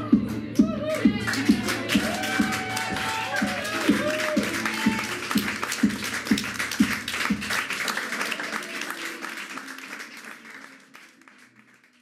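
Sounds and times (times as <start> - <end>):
audience applause: 1.3 - 12.0
drum strokes: 3.9 - 7.6.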